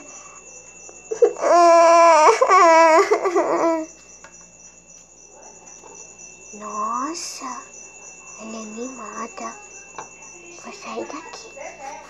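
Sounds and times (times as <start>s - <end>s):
child wailing: 1.1s - 3.9s.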